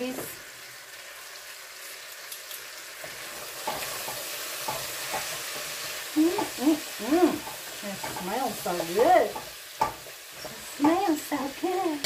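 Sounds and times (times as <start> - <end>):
chicken sizzling in a pan: 0.0 - 12.0
metal tongs scraping a pan: 2.2 - 5.9, 7.3 - 11.2.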